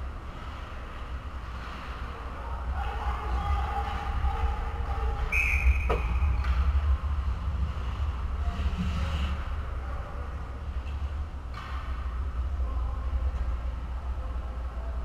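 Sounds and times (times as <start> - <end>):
low rumble of rink noise: 0.0 - 15.0
referee's whistle blast: 5.3 - 6.2.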